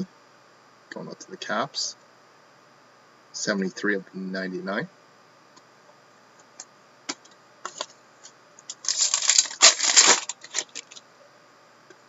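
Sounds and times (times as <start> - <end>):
wrapper crinkling and tearing: 8.7 - 11.0.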